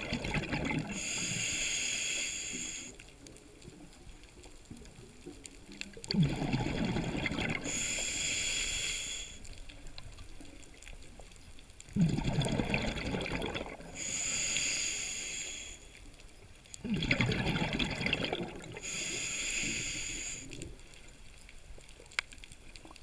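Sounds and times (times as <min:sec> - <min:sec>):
exhaled bubbles: 0:00.0 - 0:01.2, 0:06.0 - 0:08.0, 0:11.9 - 0:14.3, 0:16.8 - 0:19.2
regulator inhaling hiss: 0:00.9 - 0:03.1, 0:07.6 - 0:09.8, 0:13.9 - 0:16.2, 0:18.8 - 0:21.0.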